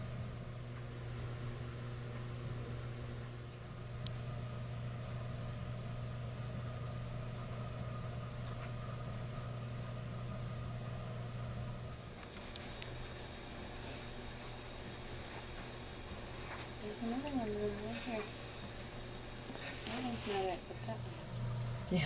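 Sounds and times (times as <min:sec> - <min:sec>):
low machine hum: 0:00.0 - 0:22.0
faint click: 0:04.0 - 0:04.2, 0:12.2 - 0:12.9.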